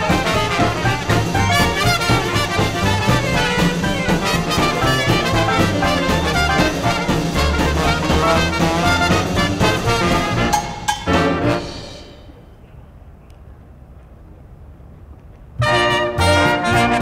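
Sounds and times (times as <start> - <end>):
brass swing jazz music: 0.0 - 12.4, 15.6 - 17.0.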